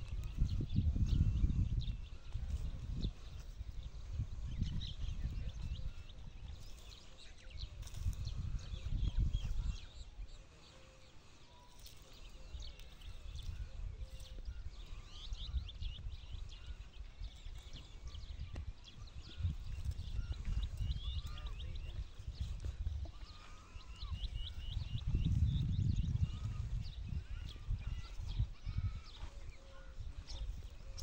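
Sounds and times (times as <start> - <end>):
low gusting rumble: 19.2 - 29.2.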